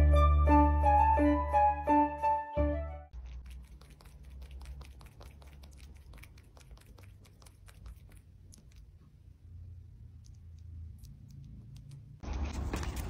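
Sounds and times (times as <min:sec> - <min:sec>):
kitten mouth clicks and smacking: 0:03.1 - 0:12.2.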